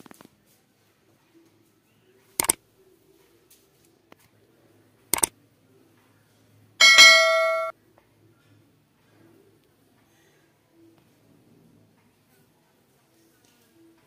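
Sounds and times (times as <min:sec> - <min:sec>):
notification bell chime: 0:06.8 - 0:07.7.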